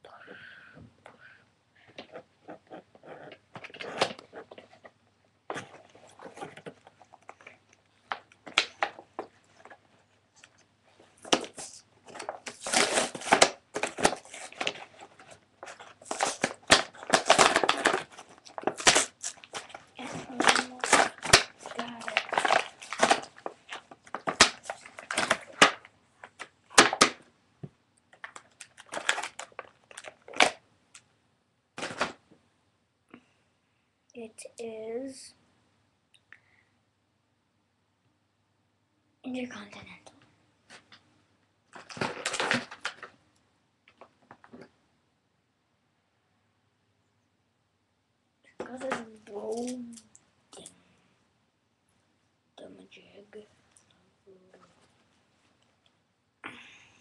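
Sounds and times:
plastic packaging crinkling: 0:11.2 - 0:27.2, 0:28.1 - 0:30.6, 0:41.7 - 0:43.2
plastic tearing and snapping: 0:11.2 - 0:27.2, 0:28.1 - 0:31.0, 0:41.7 - 0:43.1.

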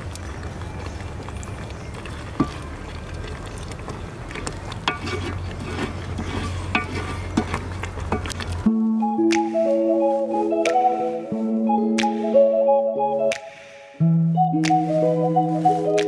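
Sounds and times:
wooden spatula scraping metal pot: 0:03.6 - 0:08.6.

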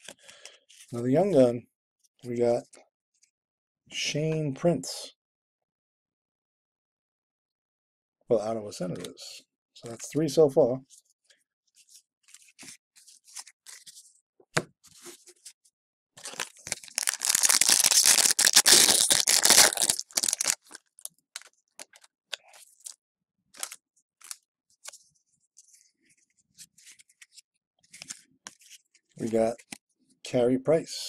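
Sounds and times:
cards clicking and rustling: 0:16.2 - 0:20.8
foil pack tearing and crinkling: 0:16.2 - 0:22.0.

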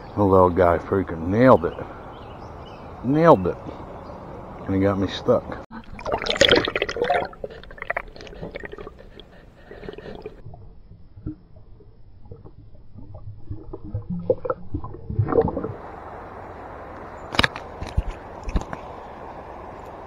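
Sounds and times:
river water splashing: 0:05.8 - 0:10.4, 0:15.2 - 0:20.0
muffled underwater clicks: 0:17.3 - 0:18.9.

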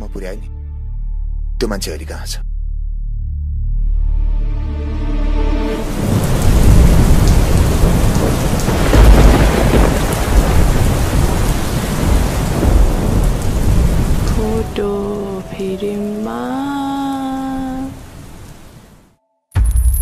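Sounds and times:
heavy rain: 0:05.4 - 0:19.1
rolling thunder: 0:05.8 - 0:14.6
pitched voice or melody: 0:14.4 - 0:18.0.

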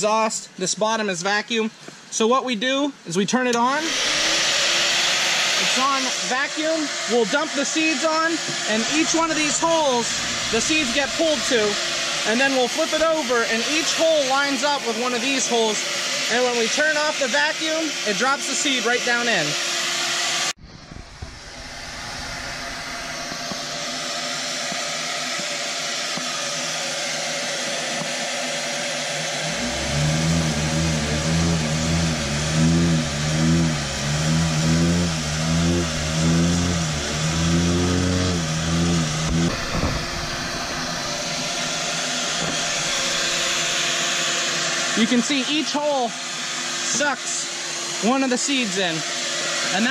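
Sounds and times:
blower rushing: 0:03.5 - 0:49.9
vibrator low wavering buzz: 0:08.8 - 0:12.8, 0:20.6 - 0:23.8, 0:29.4 - 0:43.8.

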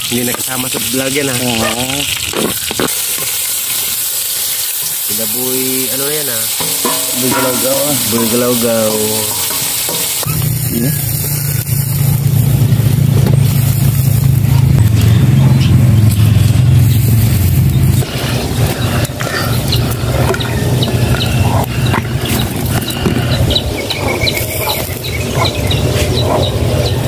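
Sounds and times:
food sizzling in a wok: 0:00.0 - 0:23.0, 0:23.6 - 0:26.0
loud low rumble: 0:10.3 - 0:27.0.

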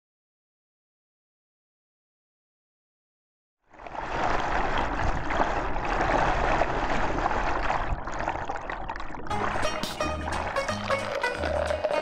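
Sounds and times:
music with bass line: 0:09.3 - 0:12.0
whitewater rushing and gurgling: 0:09.3 - 0:12.0.

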